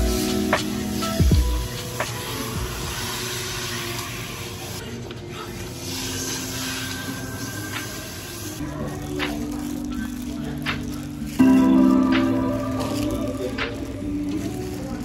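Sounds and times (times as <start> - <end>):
shower head spraying water: 0.0 - 4.8, 5.8 - 8.6.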